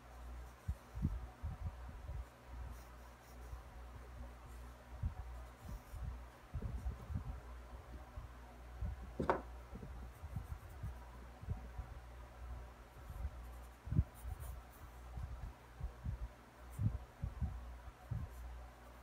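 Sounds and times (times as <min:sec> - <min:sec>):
pencil scratching on paper: 0:02.2 - 0:07.1, 0:13.0 - 0:15.4.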